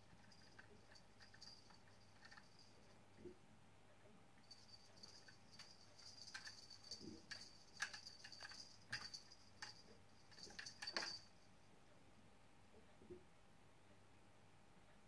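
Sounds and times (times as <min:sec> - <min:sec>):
metallic jingling of cat toy: 0:00.0 - 0:02.8, 0:04.5 - 0:11.3.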